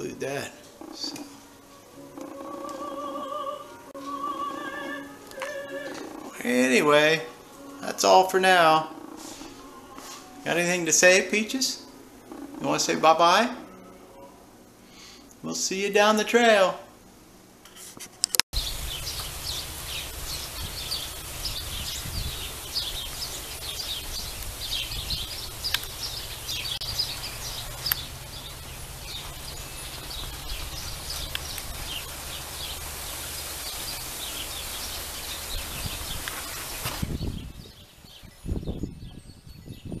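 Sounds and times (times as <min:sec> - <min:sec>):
small birds chirping: 0:00.0 - 0:01.4, 0:18.6 - 0:40.0
wind rushing: 0:18.6 - 0:40.0.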